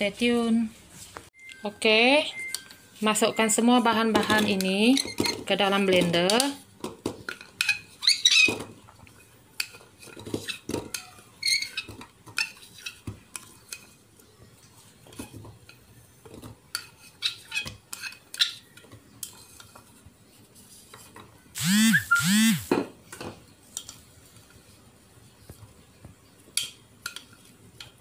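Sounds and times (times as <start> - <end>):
spoon scraping a plate: 7.3 - 14.0, 16.7 - 19.9.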